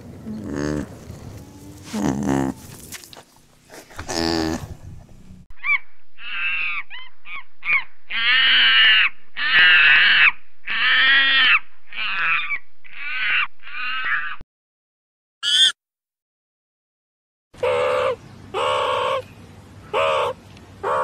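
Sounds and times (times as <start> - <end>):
monkey screeching calls: 5.6 - 14.4, 15.4 - 15.8.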